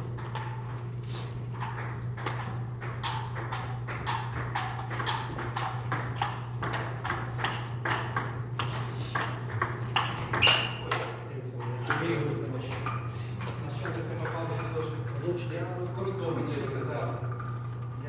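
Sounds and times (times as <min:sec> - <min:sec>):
ping pong ball hitting paddles: 0:00.0 - 0:00.8, 0:01.5 - 0:15.1
steady low hum: 0:00.0 - 0:18.0
ball bouncing on table: 0:01.6 - 0:11.1.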